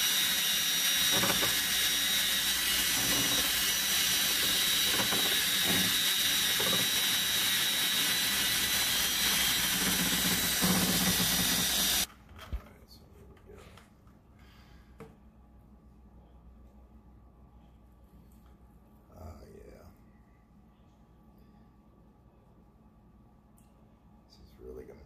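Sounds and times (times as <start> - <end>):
electric drill mixer whining: 0.0 - 12.1.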